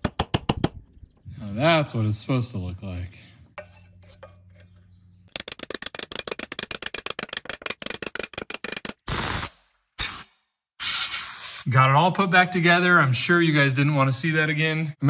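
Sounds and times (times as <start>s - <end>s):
fast run of clicks: 5.3s - 9.1s
short bursts of hiss: 9.1s - 11.7s.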